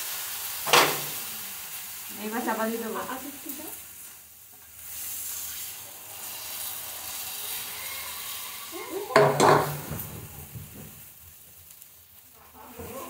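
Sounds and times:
batter sizzling on a griddle: 0.0s - 13.0s
utensils knocking: 9.1s - 10.2s.

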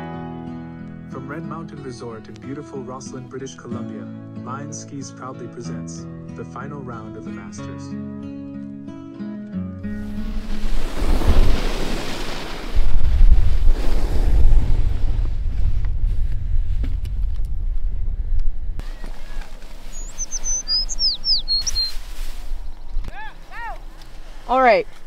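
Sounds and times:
wind buffeting microphone: 10.0s - 24.0s
bird chirping: 18.8s - 23.5s.

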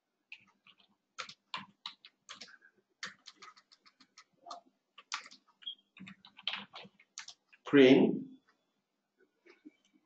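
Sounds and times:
computer keyboard typing: 0.2s - 7.6s.

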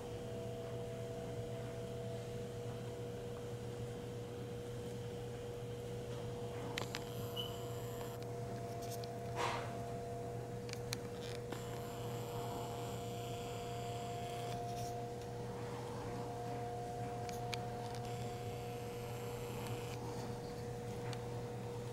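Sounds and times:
electrical hum: 0.0s - 21.9s
thin high whine: 6.4s - 21.0s.

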